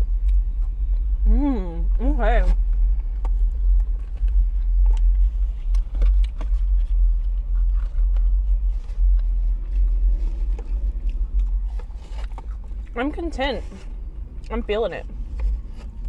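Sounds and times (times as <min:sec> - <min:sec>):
car engine idling: 0:00.0 - 0:16.0
chewing: 0:03.0 - 0:13.0.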